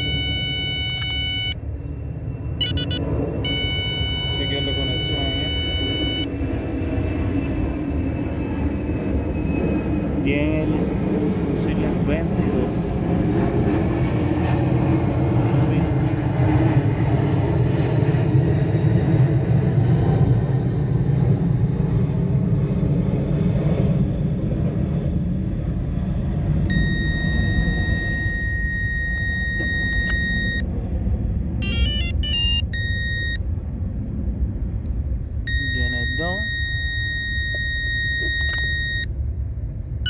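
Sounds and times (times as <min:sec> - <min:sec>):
high electronic beeps: 0:00.0 - 0:01.6, 0:02.6 - 0:06.3, 0:26.7 - 0:30.6, 0:31.6 - 0:33.4, 0:35.5 - 0:39.1
low mechanical rumble: 0:00.0 - 0:17.7, 0:20.4 - 0:40.0.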